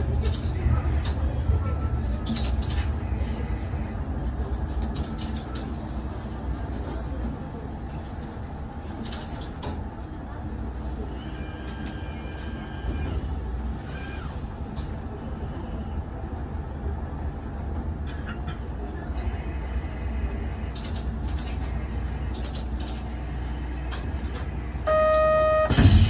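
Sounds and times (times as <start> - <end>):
railcar rumbling: 0.0 - 26.0
buzzer tone: 24.9 - 26.0.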